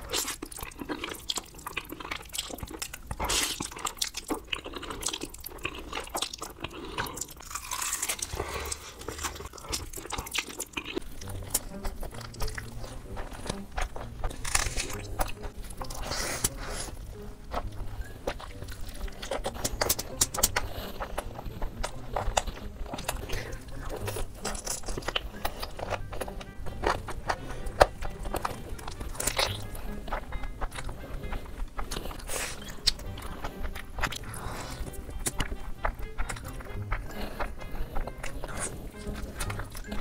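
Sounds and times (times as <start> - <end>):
person chewing and crunching food: 0.0 - 40.0
wet mouth clicks: 18.6 - 21.3.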